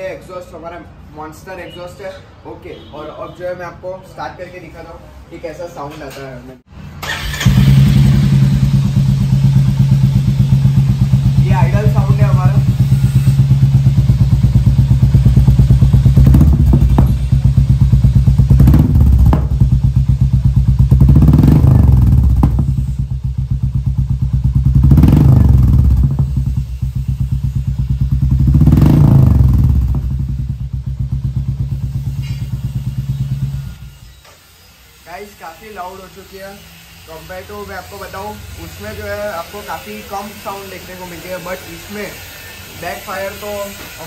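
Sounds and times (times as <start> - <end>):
motorcycle engine idling and revving: 7.0 - 34.2
motorcycle exhaust backfiring: 7.0 - 34.2.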